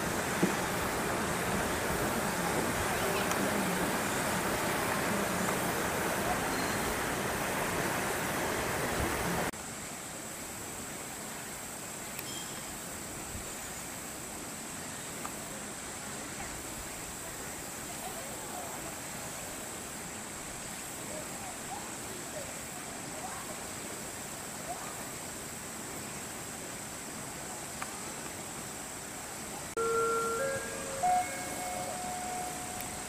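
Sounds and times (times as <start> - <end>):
faint high whine: 0.0 - 9.4, 12.2 - 12.8, 29.4 - 33.0
background hiss: 0.0 - 33.0
simple electronic tune: 29.8 - 33.0.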